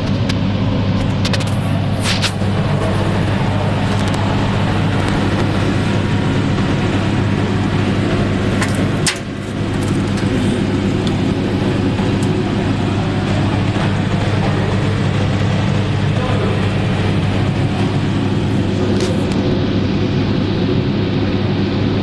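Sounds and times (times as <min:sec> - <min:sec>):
machine hum and cooling fan: 0:00.0 - 0:22.0.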